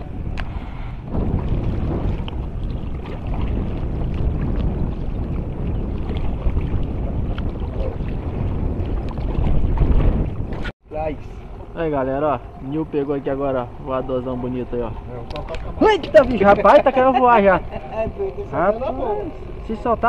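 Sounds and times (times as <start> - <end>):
wind rumble on microphone: 0.0 - 20.0
paddle splashing in water: 1.2 - 10.7.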